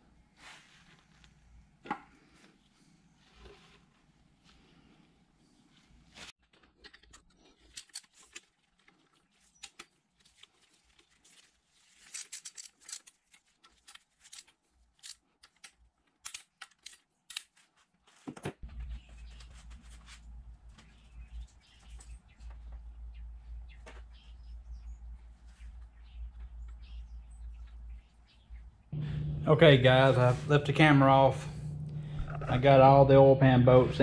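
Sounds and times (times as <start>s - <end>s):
steady low rumble: 24.7s - 34.0s.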